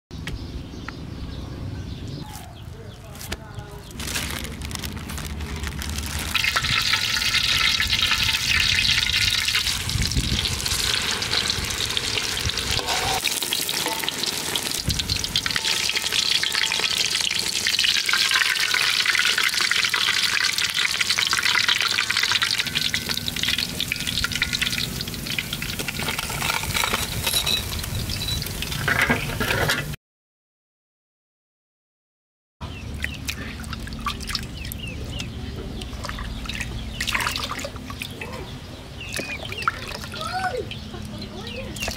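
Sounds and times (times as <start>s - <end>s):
hot oil sizzling and crackling: 5.2s - 29.5s.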